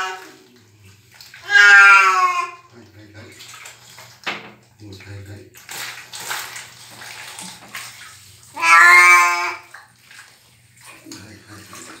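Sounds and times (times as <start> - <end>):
water splashing: 0.0 - 12.0
cat meowing: 1.4 - 2.7, 8.5 - 9.6.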